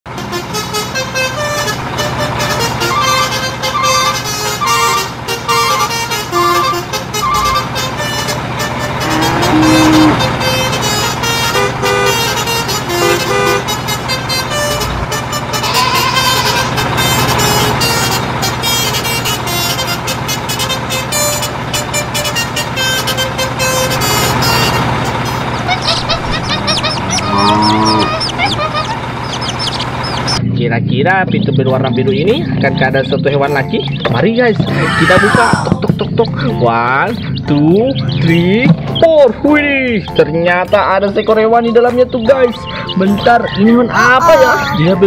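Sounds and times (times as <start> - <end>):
low hum: 0.1 - 15.7, 16.3 - 40.2
upbeat background music: 31.1 - 45.0.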